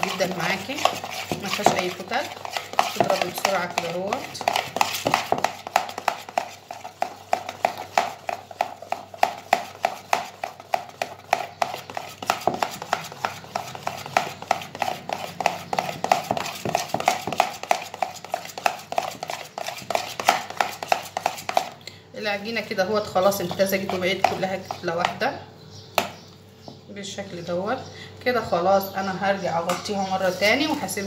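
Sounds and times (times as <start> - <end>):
wet slaps of dough being beaten: 2.6 - 21.7.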